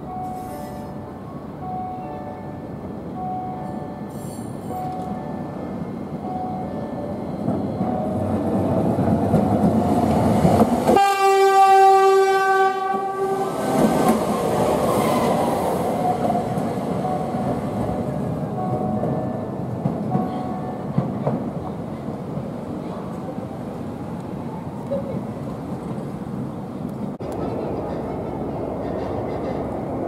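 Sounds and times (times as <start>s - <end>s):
tram running on rails: 0.0s - 30.0s
loud steady horn tone: 10.9s - 13.8s.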